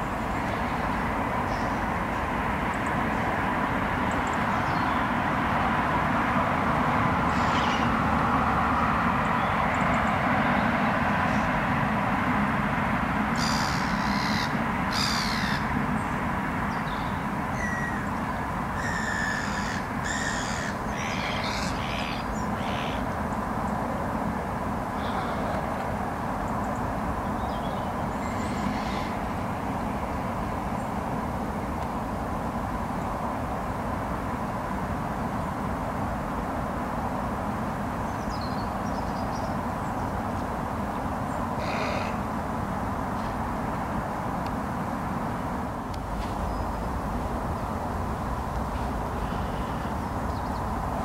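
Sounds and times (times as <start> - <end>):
urban background hum: 0.0 - 51.0
harsh bird calls: 7.3 - 8.0, 13.4 - 15.8, 16.8 - 23.2, 24.9 - 25.8, 27.5 - 29.4, 41.3 - 42.3, 49.1 - 50.7.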